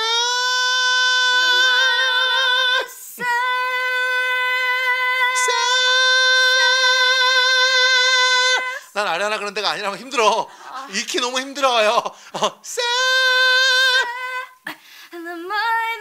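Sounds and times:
woman singing high notes: 0.0s - 8.9s
breath: 12.2s - 12.4s, 14.7s - 15.2s.

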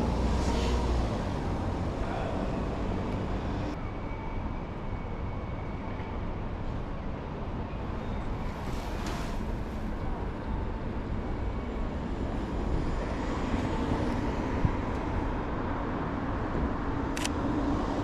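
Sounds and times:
road rumble: 0.0s - 3.9s.

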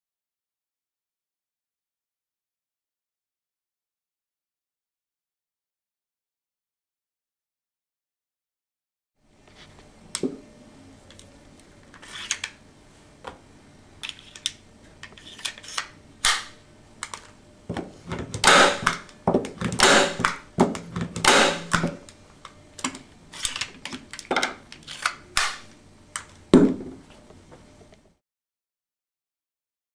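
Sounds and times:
staple gun sharp snap: 15.7s - 16.6s, 18.4s - 22.0s, 25.0s - 25.7s.

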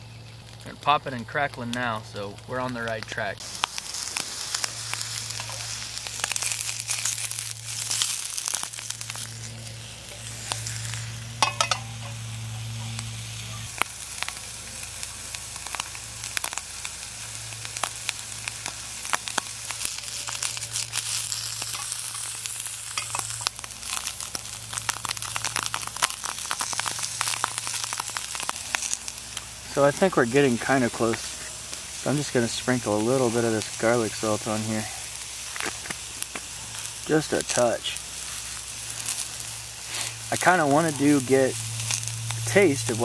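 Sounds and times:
mushrooms sizzling in a skillet: 0.0s - 43.0s
low hum: 3.4s - 37.1s.

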